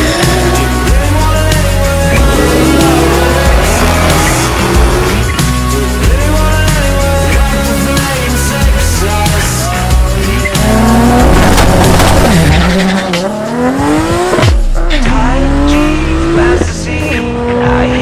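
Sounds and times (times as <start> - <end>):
music: 0.0 - 18.0
car engine revving: 1.0 - 6.4, 10.2 - 18.0.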